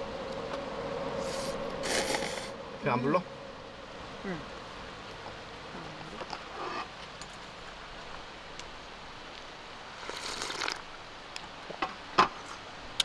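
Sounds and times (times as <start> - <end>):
outdoor hiss: 0.0 - 13.0
person slurping broth: 1.2 - 2.5, 10.0 - 10.8.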